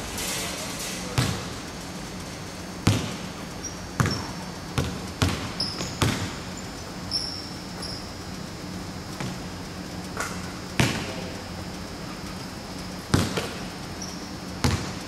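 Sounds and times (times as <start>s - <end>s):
basketball bouncing on hardwood: 1.2s - 1.5s, 2.8s - 3.2s, 4.0s - 6.4s, 13.1s - 13.6s, 14.6s - 15.0s
sneaker squeaks: 2.8s - 8.2s, 13.1s - 15.0s.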